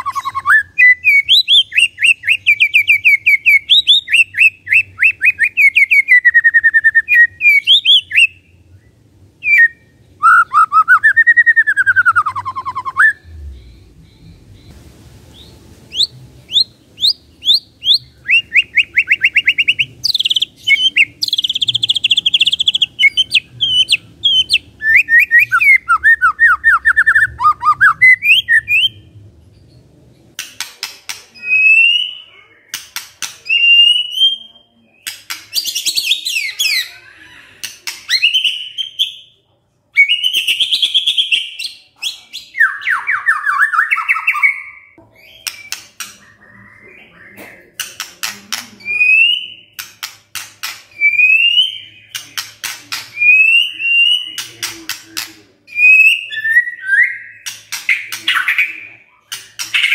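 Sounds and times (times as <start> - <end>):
bird singing rattling trills: 10.6 - 29.1.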